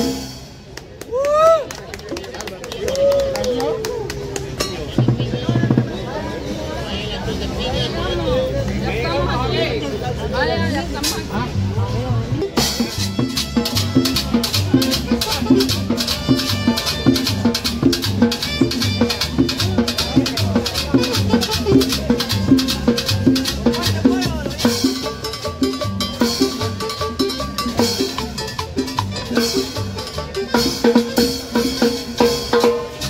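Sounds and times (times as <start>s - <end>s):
drums: 0.0s - 2.2s, 4.1s - 6.6s, 10.8s - 33.0s
metal shaker rhythm: 12.4s - 33.0s.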